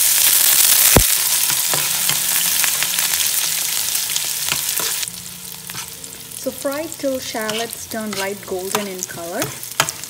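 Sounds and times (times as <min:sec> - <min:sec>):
shallots sizzling in hot oil: 0:00.0 - 0:10.0
sharp pop from frying pan: 0:00.9 - 0:02.2.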